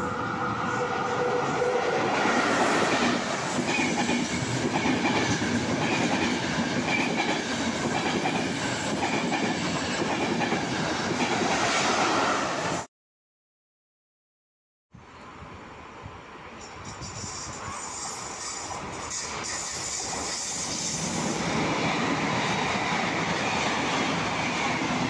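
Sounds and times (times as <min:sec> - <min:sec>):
passenger train passing at speed: 0:00.0 - 0:12.9, 0:15.2 - 0:25.0.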